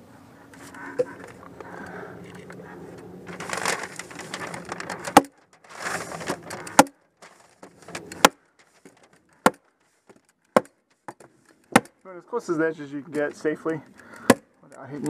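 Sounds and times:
house wrap rustling: 2.5 - 11.1.

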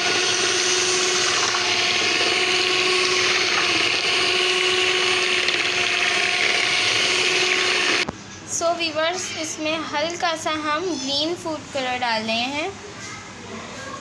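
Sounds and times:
electric hand mixer running: 0.0 - 8.1.

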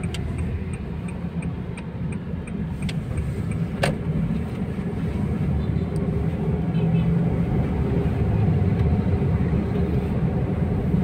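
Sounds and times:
turn signal ticking: 0.0 - 6.6
car engine and road rumble: 0.0 - 11.0.

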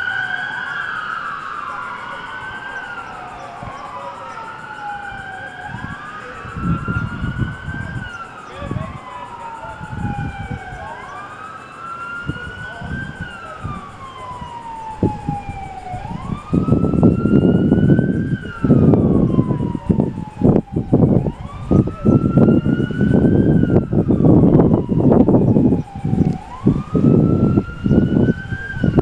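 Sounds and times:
police siren wailing: 0.0 - 29.0.

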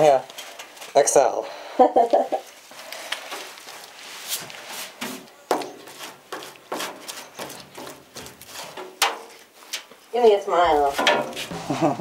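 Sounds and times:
hand tool scraping sheet metal: 5.8 - 9.8, 10.9 - 12.0.

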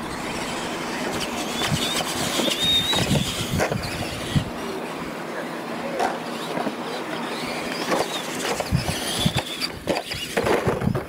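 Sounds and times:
electric motors whining: 0.0 - 11.0
toy trucks thumping on ground: 7.6 - 11.0.

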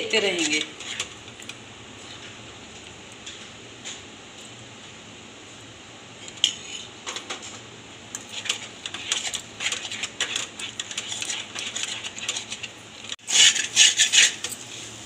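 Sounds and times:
metal spoon scraping a pan: 0.1 - 1.4, 6.2 - 7.0, 8.2 - 14.9.

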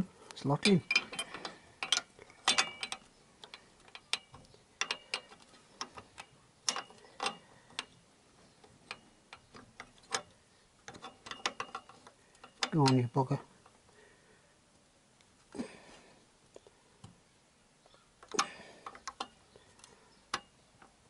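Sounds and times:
metal fittings clicking and tapping: 0.6 - 13.8, 18.2 - 21.0.

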